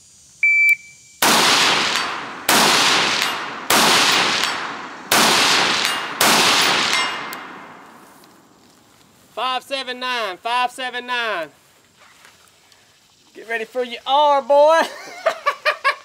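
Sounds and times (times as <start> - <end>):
shot timer beep: 0.4 - 1.2
rifle shots echoing: 1.2 - 8.6.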